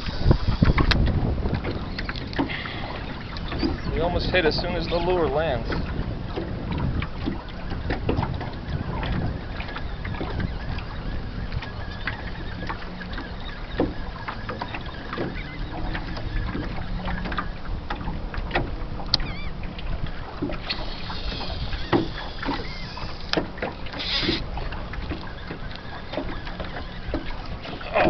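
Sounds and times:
water slapping boat hull: 0:00.0 - 0:28.0
high whirr: 0:20.6 - 0:27.8.

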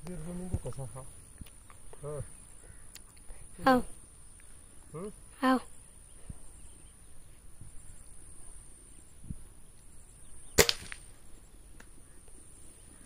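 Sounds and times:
air rifle shot: 0:10.6 - 0:11.1.

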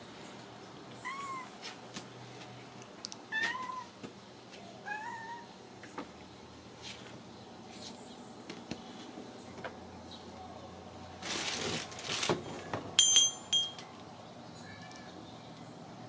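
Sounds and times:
scraping rustle: 0:11.2 - 0:12.7
loud clinking ring: 0:13.0 - 0:13.9.

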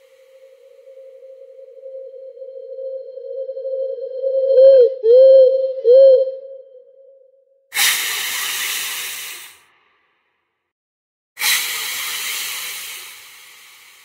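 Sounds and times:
steady tone: 0:00.0 - 0:06.4
loud hissing bursts: 0:07.8 - 0:09.6, 0:11.4 - 0:14.0.

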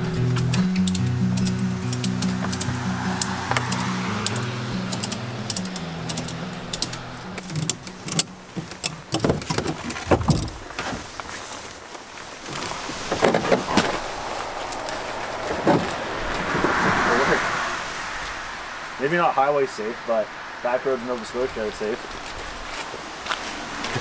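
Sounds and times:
background music: 0:00.0 - 0:09.0
strap buckles clinking: 0:00.3 - 0:10.8.

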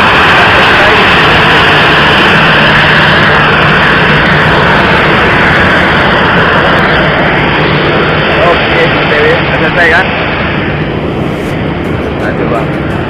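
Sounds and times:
jet engines running: 0:00.0 - 0:13.0.

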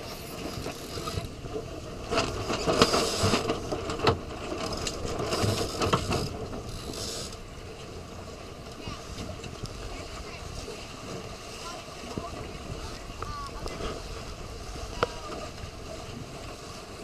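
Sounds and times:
water splashing against hull: 0:00.0 - 0:17.0
boat gear clicking and knocking: 0:02.1 - 0:07.4.

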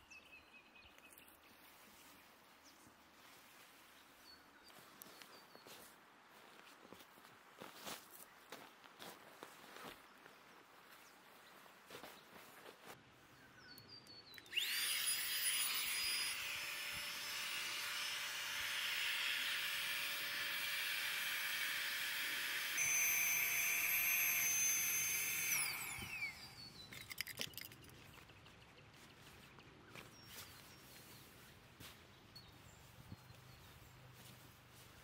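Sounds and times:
power tool motor whining: 0:14.4 - 0:27.2.

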